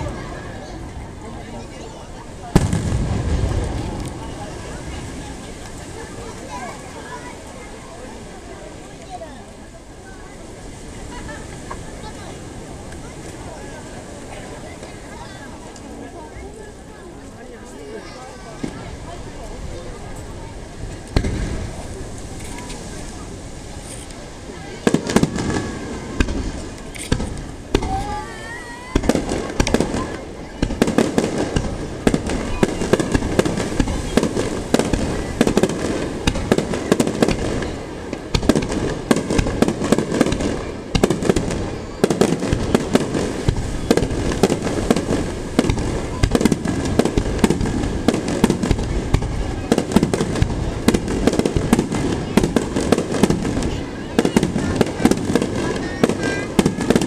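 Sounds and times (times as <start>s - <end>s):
firework shells bursting: 24.8s - 28.1s, 28.9s - 57.0s.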